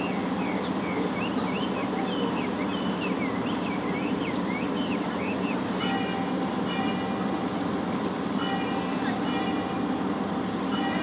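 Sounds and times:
birds chirping: 0:00.0 - 0:06.2.

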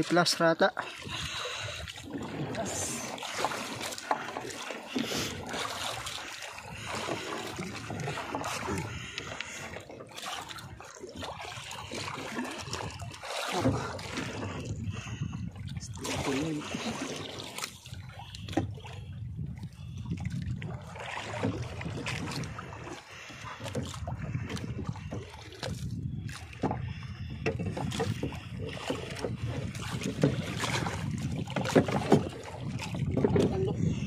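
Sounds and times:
water splashing against boat: 0:00.0 - 0:34.0.

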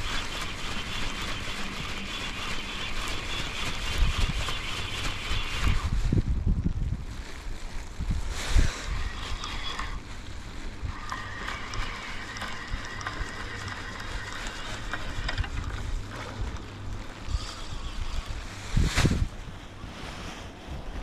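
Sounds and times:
fishing reel gears whirring: 0:00.0 - 0:05.9, 0:08.6 - 0:18.6
wind rumble on microphone: 0:00.0 - 0:21.0.

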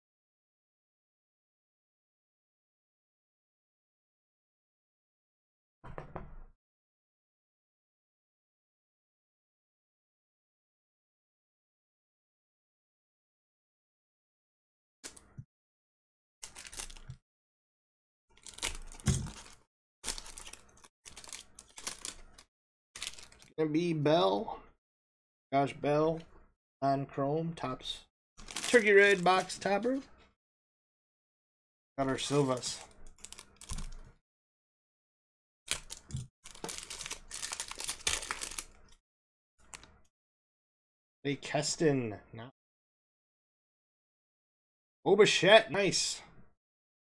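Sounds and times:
foil wrapper crinkling and tearing: 0:16.4 - 0:17.2, 0:18.4 - 0:23.5, 0:28.4 - 0:29.6, 0:32.1 - 0:34.0, 0:35.7 - 0:39.0.

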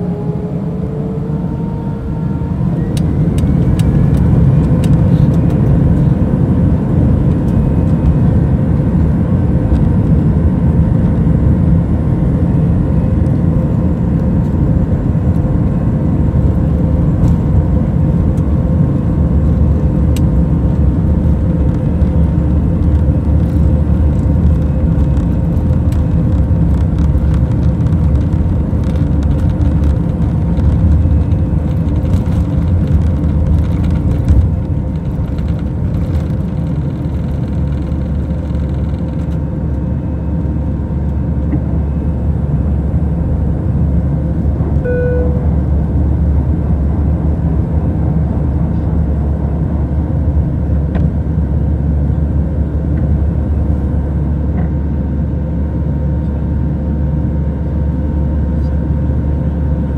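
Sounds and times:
jet engines rumbling: 0:00.0 - 0:59.9
wheels rattling on runway: 0:20.7 - 0:39.7
short beep: 0:44.8 - 0:45.6.

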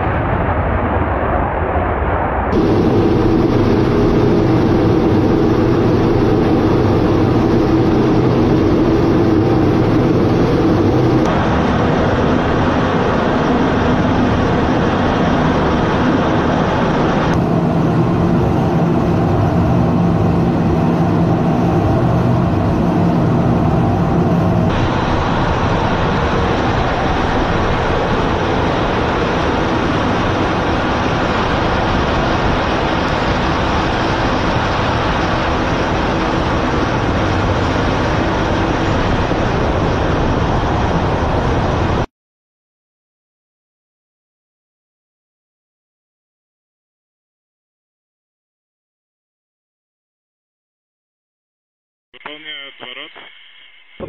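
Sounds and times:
jet engine and airflow rushing: 0:00.0 - 0:42.1.

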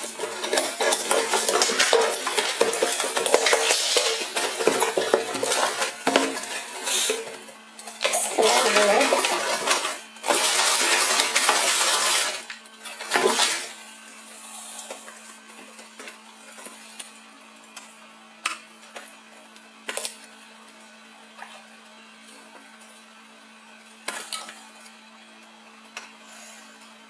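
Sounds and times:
cardboard and paper rustling: 0:08.0 - 0:12.4, 0:13.0 - 0:13.7.

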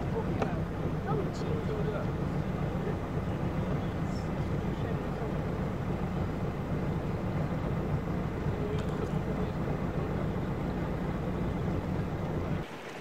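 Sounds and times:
motor boat rumbling: 0:00.0 - 0:13.0.

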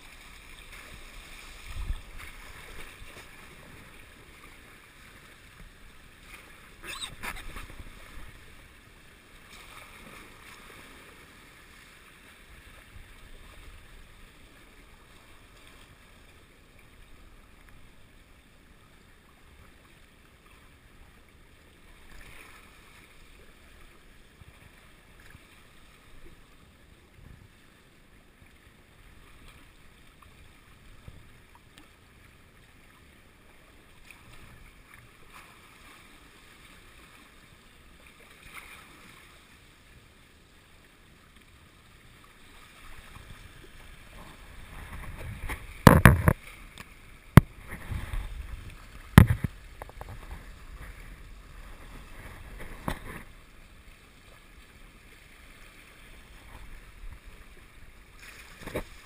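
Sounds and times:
water rushing along hulls: 0:00.0 - 0:59.0
wind rumble on microphone: 0:00.9 - 0:03.1, 0:44.1 - 0:46.4, 0:47.4 - 0:53.3.

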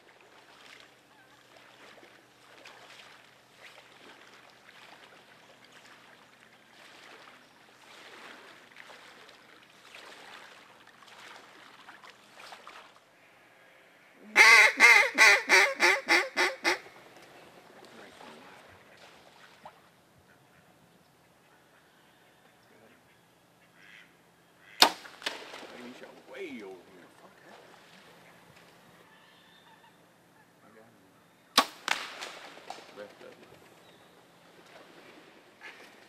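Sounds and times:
legs wading through water: 0:00.0 - 0:13.5, 0:16.6 - 0:21.0, 0:23.5 - 0:29.1, 0:31.9 - 0:36.0
duck call quacks: 0:14.2 - 0:16.9, 0:23.6 - 0:24.9.

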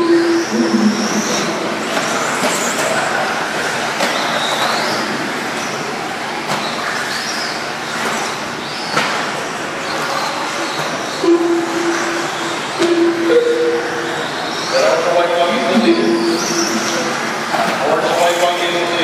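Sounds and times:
steady noise: 0:00.0 - 0:03.6.

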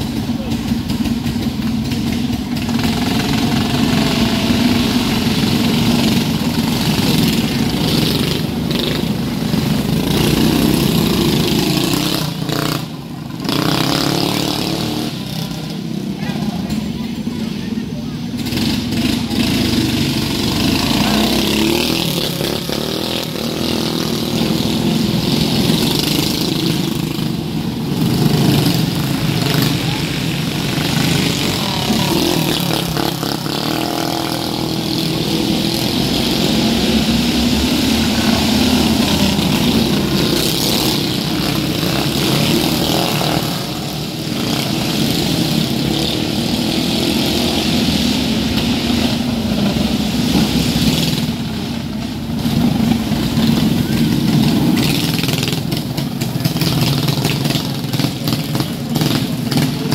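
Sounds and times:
racing vehicle engines droning: 0:00.0 - 0:59.9.

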